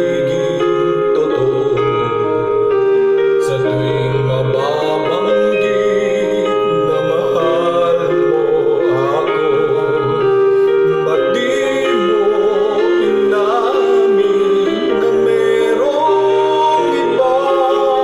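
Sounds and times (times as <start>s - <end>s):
karaoke backing track: 0.0s - 18.0s
man singing into microphone: 0.0s - 18.0s.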